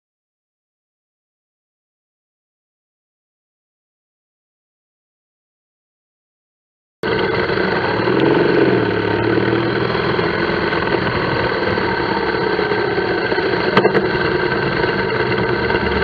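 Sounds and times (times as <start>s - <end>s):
motorcycle engine running: 7.0s - 16.0s.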